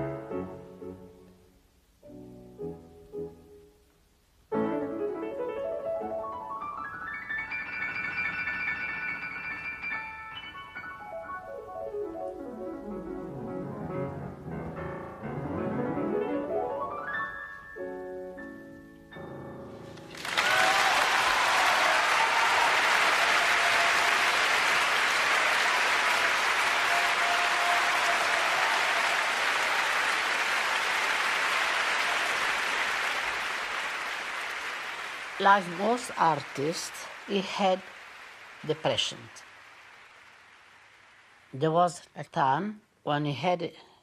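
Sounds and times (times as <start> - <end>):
grand piano playing: 0.0 - 1.3, 4.5 - 20.2
audience applause: 20.0 - 41.5.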